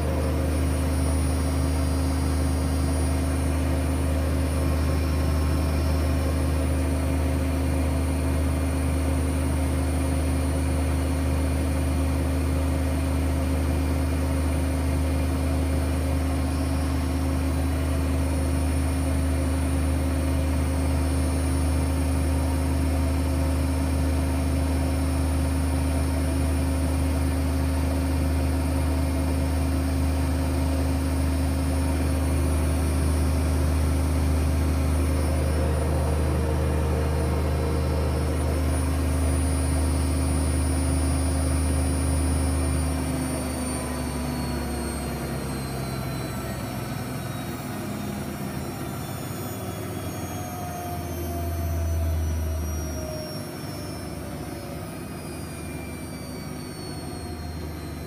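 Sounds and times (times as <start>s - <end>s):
washing machine spinning: 0.0s - 58.0s.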